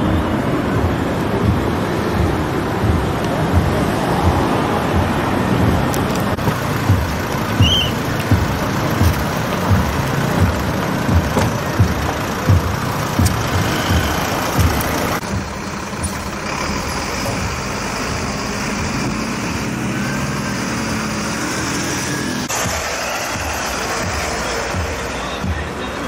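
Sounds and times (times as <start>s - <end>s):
low thumps: 0.0s - 16.3s
road and vehicle noise: 0.0s - 26.0s
fire engine engine idling: 6.1s - 19.7s.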